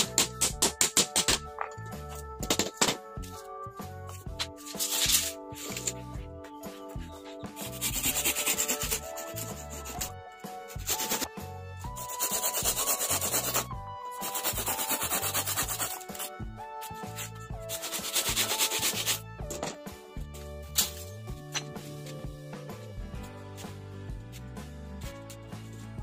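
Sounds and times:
background music: 0:00.0 - 0:26.0
hand saw cutting bamboo: 0:07.6 - 0:10.1, 0:10.7 - 0:11.3, 0:12.0 - 0:16.3, 0:17.7 - 0:19.2.

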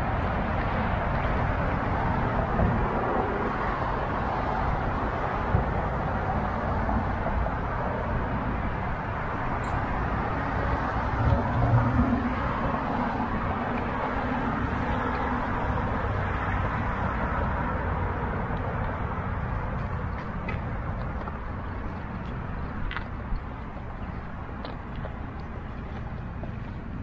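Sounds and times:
road traffic: 0:00.0 - 0:27.0
vehicle passing: 0:00.0 - 0:27.0.

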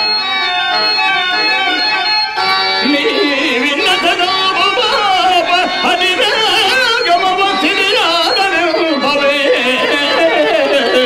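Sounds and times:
harmonium: 0:00.0 - 0:11.0
person singing ornamented notes: 0:00.0 - 0:11.0.

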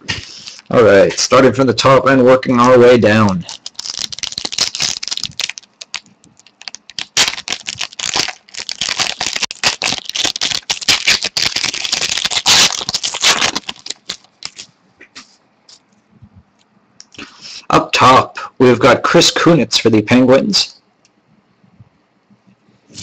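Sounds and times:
foil wrapper crinkling and tearing: 0:03.3 - 0:14.7.

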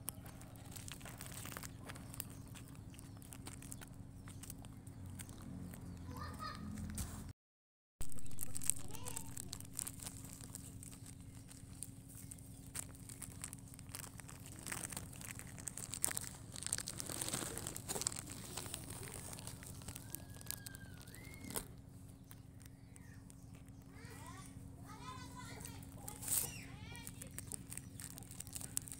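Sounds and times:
plastic wrapper crinkling: 0:00.0 - 0:06.0, 0:08.0 - 0:28.9.

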